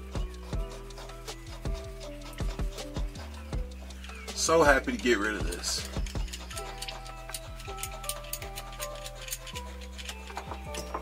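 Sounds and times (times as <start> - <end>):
deep kick drums: 0.0 - 4.0, 4.6 - 6.6
hi-hat ticks: 0.0 - 10.2.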